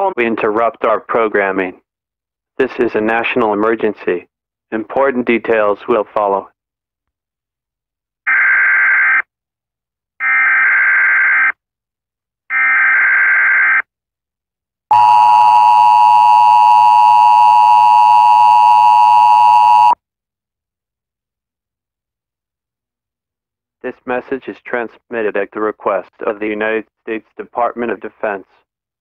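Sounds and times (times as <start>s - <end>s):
harsh two-tone alarm: 10.2s - 11.5s, 12.5s - 13.8s, 14.9s - 20.0s.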